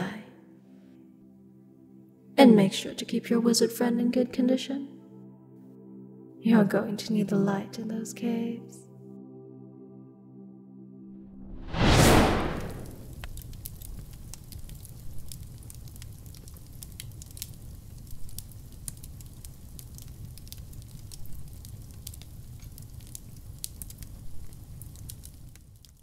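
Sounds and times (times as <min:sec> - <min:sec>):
loud rushing noise: 0:11.3 - 0:13.1
campfire crackling and popping: 0:11.8 - 0:26.0.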